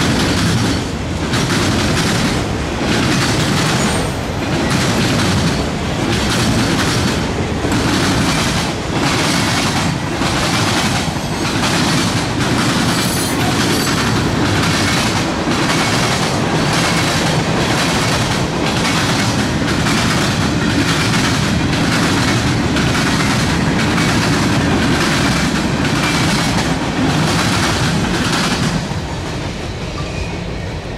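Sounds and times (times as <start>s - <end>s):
train wheels clacking over track: 0.0s - 30.9s.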